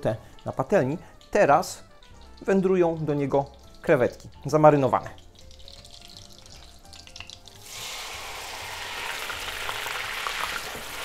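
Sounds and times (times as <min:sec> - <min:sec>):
shrimp sizzling in hot fat: 0:00.0 - 0:11.0.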